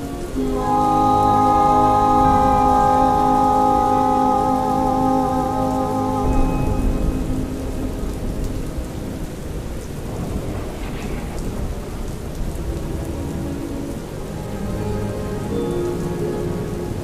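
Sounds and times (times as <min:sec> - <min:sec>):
faint held music notes: 0:00.0 - 0:10.3, 0:13.0 - 0:17.0
steady rain: 0:00.0 - 0:17.0
low thunder rumble: 0:01.9 - 0:14.2.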